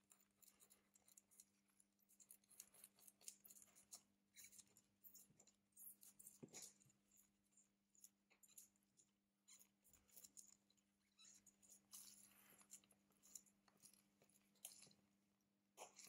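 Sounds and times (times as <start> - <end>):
small tools clicking and scraping: 9.5 - 15.1.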